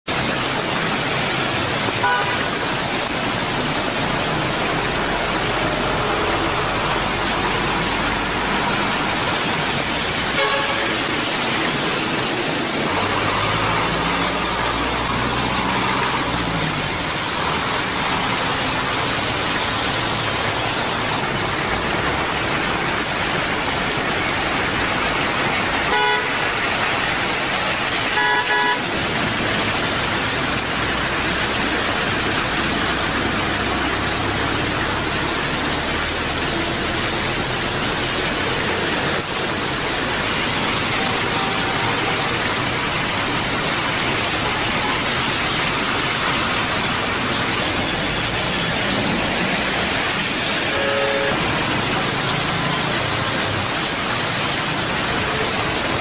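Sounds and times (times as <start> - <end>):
heavy rain hissing: 0.1 - 56.0
traffic through standing water: 0.1 - 56.0
vehicle horn toots: 2.0 - 2.4, 10.4 - 11.0, 25.9 - 26.4, 28.1 - 28.9, 50.7 - 51.4.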